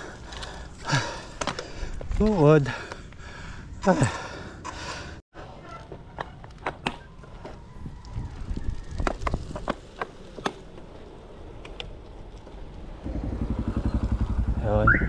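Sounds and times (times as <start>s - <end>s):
low wind rumble: 7.2s - 15.0s
bicycle clicks and knocks: 8.6s - 12.8s.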